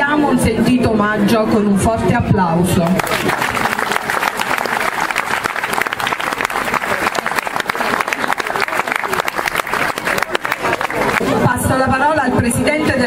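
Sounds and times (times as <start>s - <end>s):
crowd applauding: 2.8s - 11.6s.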